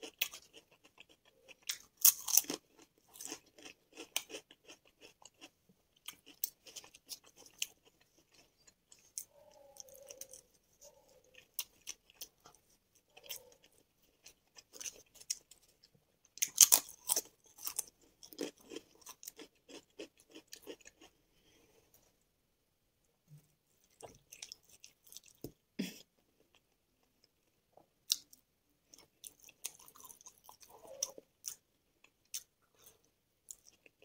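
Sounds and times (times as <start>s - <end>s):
person crunching chips: 0.0s - 9.1s, 16.3s - 21.1s
person chewing food: 0.0s - 21.8s, 23.8s - 34.0s.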